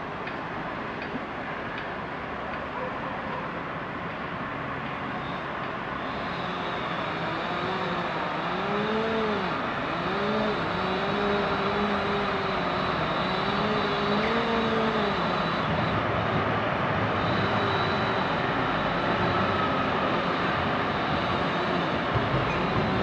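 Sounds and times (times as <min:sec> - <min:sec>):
excavator engine and hydraulics: 0:00.0 - 0:23.0
steady mechanical rumble: 0:05.6 - 0:23.0.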